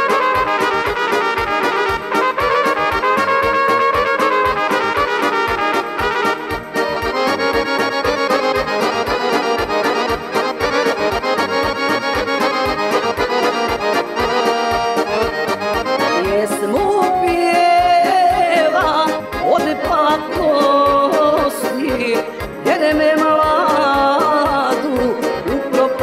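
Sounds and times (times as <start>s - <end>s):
folk band playing: 0.0s - 26.0s
melodic line with sliding notes: 0.0s - 26.0s
piano accordion: 0.0s - 26.0s.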